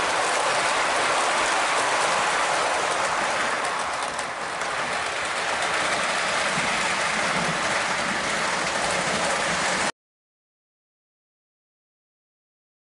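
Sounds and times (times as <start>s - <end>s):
model train cars rolling: 0.0s - 9.9s.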